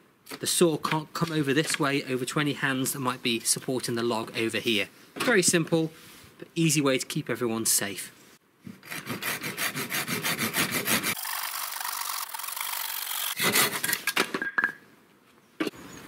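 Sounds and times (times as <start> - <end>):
hand saw cutting log: 8.8 - 14.0.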